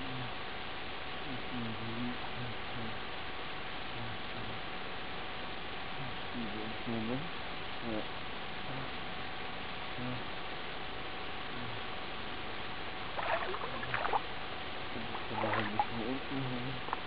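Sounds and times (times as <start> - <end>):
steady hiss and hum: 0.0 - 17.0
water splashing from swimming: 13.2 - 14.3, 15.1 - 16.0.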